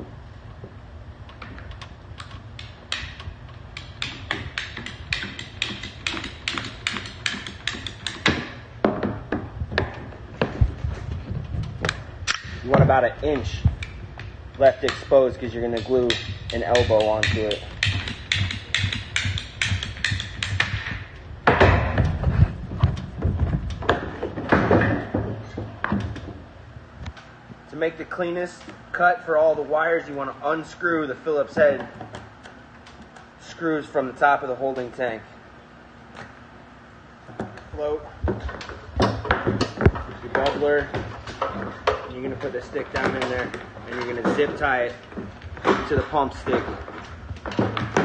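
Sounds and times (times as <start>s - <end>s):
pipe cutter ratchet clicking: 2.2s - 8.4s, 15.7s - 20.7s
tool and pipe clattering on plastic: 3.8s - 13.6s, 14.6s - 26.4s, 37.3s - 48.0s.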